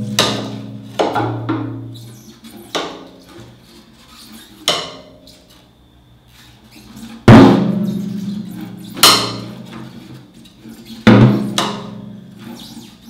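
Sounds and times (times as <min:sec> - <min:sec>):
tom drum hits ringing: 0:07.3 - 0:09.6.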